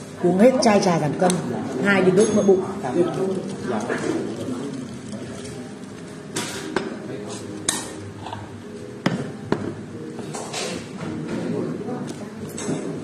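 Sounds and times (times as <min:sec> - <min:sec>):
restaurant chatter: 0:00.0 - 0:13.0
glassware and tableware clinking: 0:01.9 - 0:03.1.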